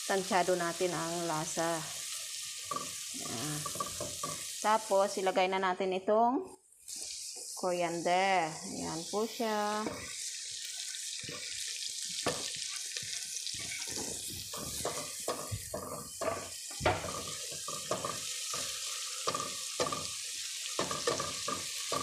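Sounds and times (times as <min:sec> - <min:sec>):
herbs sizzling in hot oil: 0:00.0 - 0:22.0
spatula scraping a pan: 0:02.0 - 0:04.6, 0:09.8 - 0:22.0.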